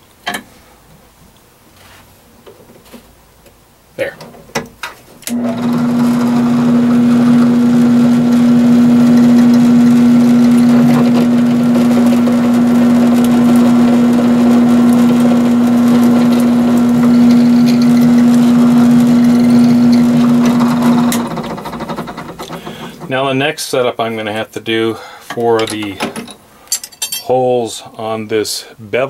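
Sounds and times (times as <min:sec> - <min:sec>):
drill press motor humming: 0:05.3 - 0:23.1.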